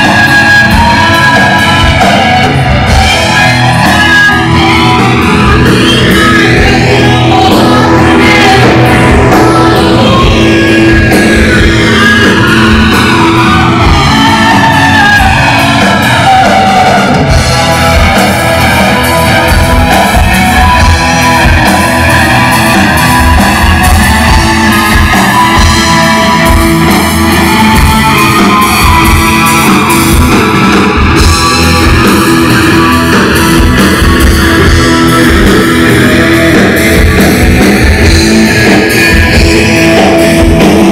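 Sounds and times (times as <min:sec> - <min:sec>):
live rock band playing: 0:00.0 - 0:40.9
person shouting singing: 0:00.0 - 0:40.9.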